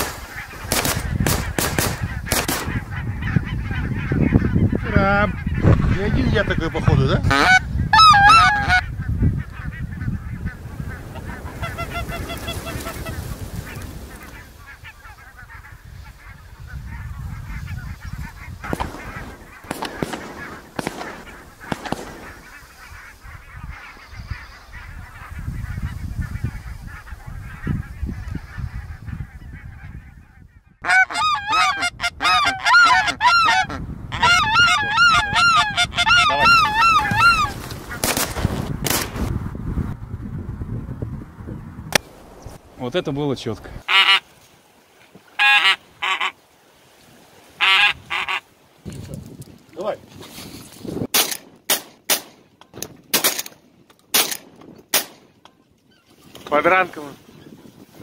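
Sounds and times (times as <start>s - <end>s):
goose honking: 0.0s - 38.1s, 43.8s - 44.2s, 45.4s - 46.4s, 47.6s - 48.5s
wooden goose call blown: 7.2s - 8.8s, 11.6s - 13.2s, 30.8s - 37.5s.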